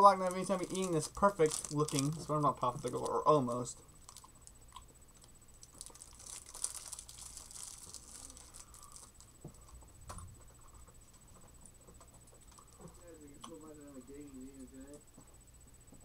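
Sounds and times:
plastic wrapper crinkling: 0.0s - 4.6s, 5.6s - 9.4s.

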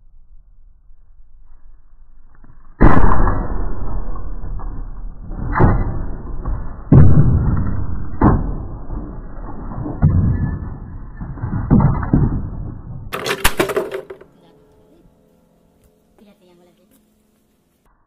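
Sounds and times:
sledgehammer smashing piano: 2.8s - 14.3s.

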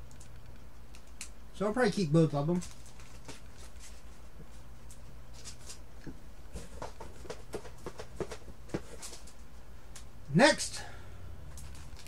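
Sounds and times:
steady low hum: 0.0s - 12.0s
photo prints clicking and rustling: 6.5s - 9.4s, 11.5s - 12.0s.

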